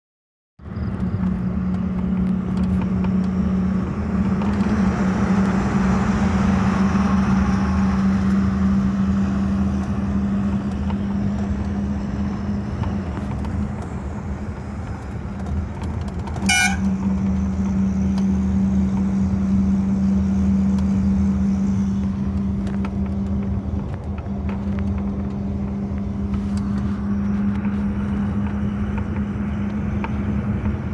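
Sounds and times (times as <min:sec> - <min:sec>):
vehicle drone with road noise: 0:00.6 - 0:30.9
short horn toot: 0:16.4 - 0:16.9.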